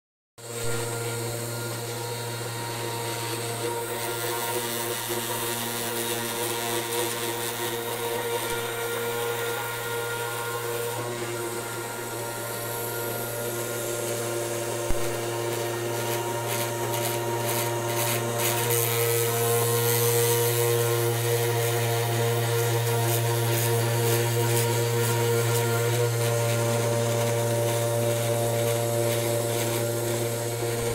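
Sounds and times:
end mill rasping on wood: 0:00.4 - 0:30.9
router spindle motor whining: 0:00.4 - 0:30.9.

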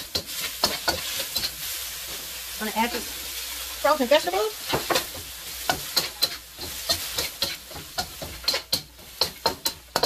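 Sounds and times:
food sizzling in a wok: 0:00.0 - 0:10.0
utensil scraping against wok: 0:00.0 - 0:10.0.

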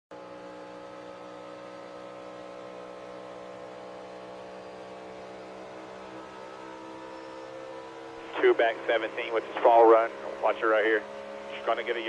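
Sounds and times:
race car engine at high revs: 0:00.1 - 0:12.0.

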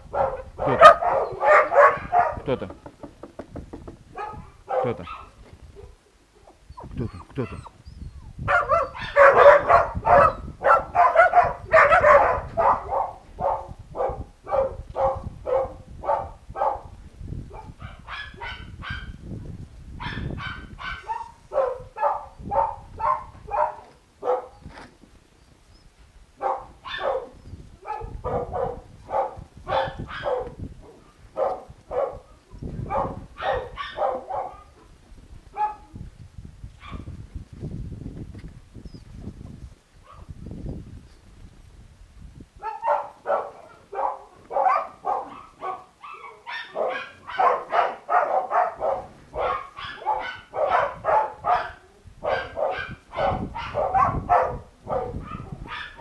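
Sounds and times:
puppies barking: 0:00.1 - 0:02.5, 0:04.2 - 0:07.8, 0:08.5 - 0:16.8, 0:20.0 - 0:24.6, 0:26.4 - 0:32.3, 0:32.9 - 0:34.8, 0:42.6 - 0:56.0.

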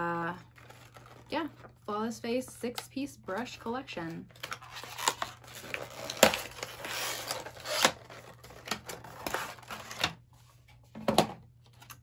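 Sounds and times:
packaging rustling: 0:00.5 - 0:01.8, 0:04.3 - 0:10.2.

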